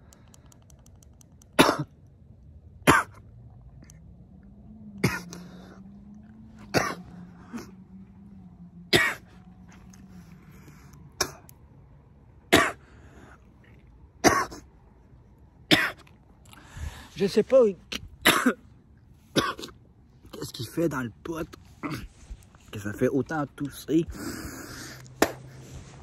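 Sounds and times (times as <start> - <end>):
man coughing: 1.6 - 2.0, 2.8 - 3.2, 5.0 - 5.8, 6.7 - 7.8, 8.9 - 9.3, 12.5 - 12.9, 14.2 - 14.7, 15.7 - 16.1, 18.2 - 18.7, 19.3 - 19.8, 21.8 - 22.2.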